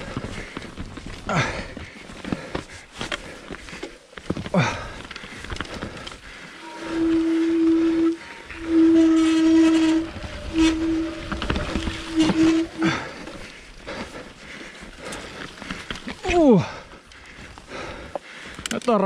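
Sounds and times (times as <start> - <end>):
bike rattling on trail: 0.0 - 19.0
bike disc brakes howling: 5.6 - 13.7.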